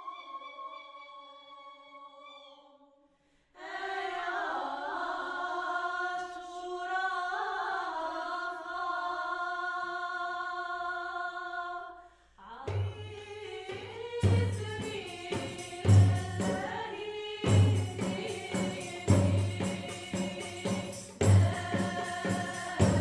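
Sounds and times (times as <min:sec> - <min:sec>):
women singing unaccompanied: 0:03.6 - 0:23.0
frame drums: 0:12.7 - 0:23.0.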